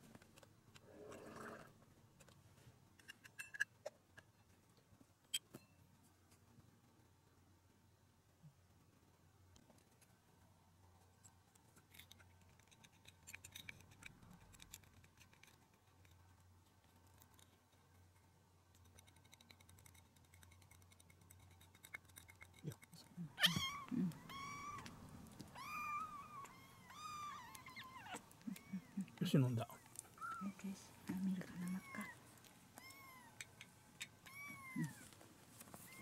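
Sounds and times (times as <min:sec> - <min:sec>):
kitten meowing: 0:23.3 - 0:29.1, 0:32.8 - 0:33.5, 0:34.2 - 0:35.1.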